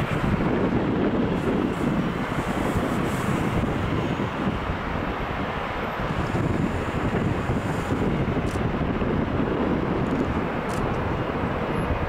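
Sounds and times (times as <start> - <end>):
low rumble of airport vehicles: 0.0 - 12.0
wind buffeting the microphone: 0.0 - 12.0.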